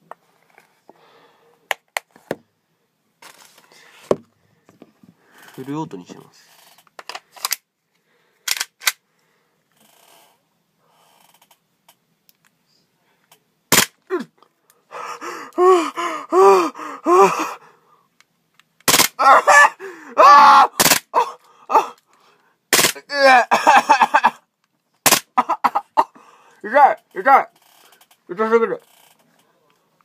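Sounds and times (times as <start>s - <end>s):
airsoft pistol cracks: 13.7s - 14.0s, 18.8s - 19.2s, 20.8s - 21.1s, 22.7s - 23.0s, 25.1s - 25.4s
man groaning and gasping: 14.1s - 17.8s, 19.2s - 22.1s, 23.0s - 23.8s.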